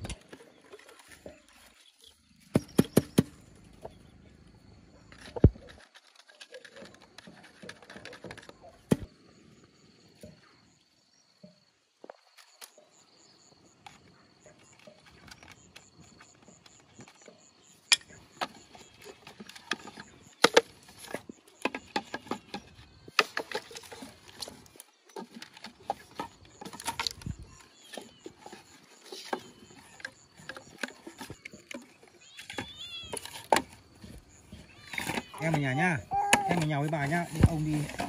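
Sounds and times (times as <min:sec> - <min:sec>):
bamboo tubes knocking together: 0:02.5 - 0:03.4, 0:05.2 - 0:09.1, 0:14.8 - 0:38.0.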